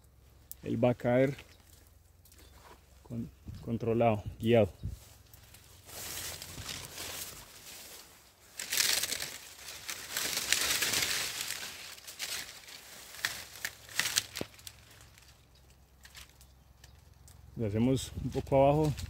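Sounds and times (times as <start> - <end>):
dry leaves crackling and rustling: 5.0 - 19.0
plant stem tearing: 8.6 - 15.4.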